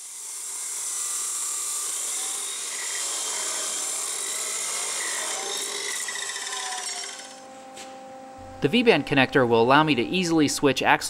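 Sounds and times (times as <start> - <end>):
chop saw grinding through steel: 0.0 - 7.4.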